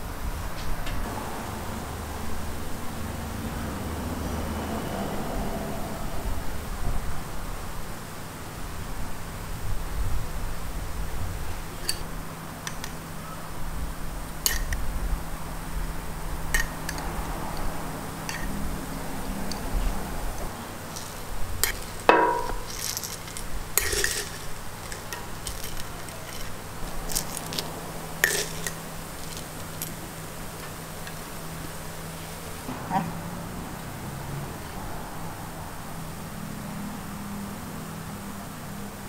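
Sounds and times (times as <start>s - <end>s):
metal tongs clinking on griddle: 14.4s - 14.8s, 18.3s - 18.6s, 20.9s - 31.2s.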